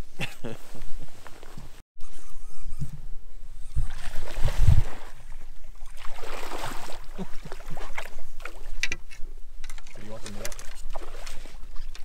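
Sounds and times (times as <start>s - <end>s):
fish splashing in water: 3.8s - 8.8s.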